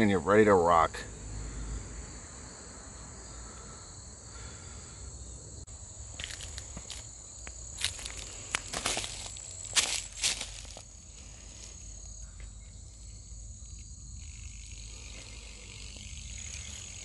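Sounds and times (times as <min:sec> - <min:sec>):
insects trilling: 0:00.0 - 0:17.0
footsteps on dry leaves: 0:06.1 - 0:11.9.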